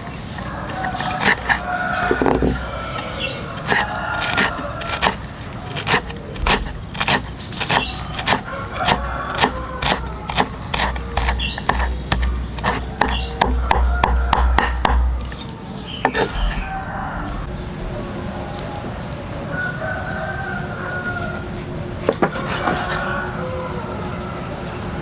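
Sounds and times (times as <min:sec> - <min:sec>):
sharp knocks: 0:06.4 - 0:15.4.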